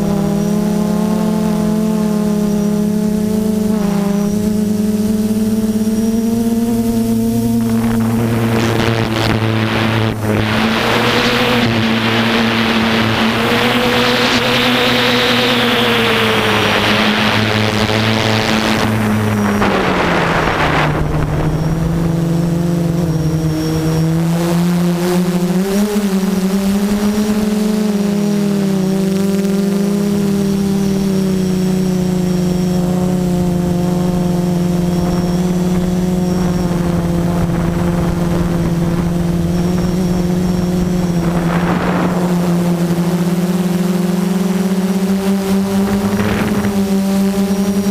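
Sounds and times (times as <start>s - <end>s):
drone motors whining: 0.0s - 47.9s
loud rushing noise: 7.4s - 23.2s, 40.8s - 43.2s, 45.6s - 47.9s.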